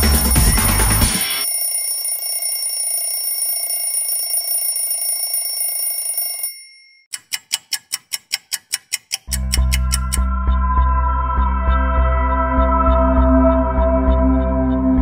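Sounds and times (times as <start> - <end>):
music with deep bass: 0.0 - 1.3, 9.3 - 15.0
high electronic ringing tones: 0.0 - 7.1.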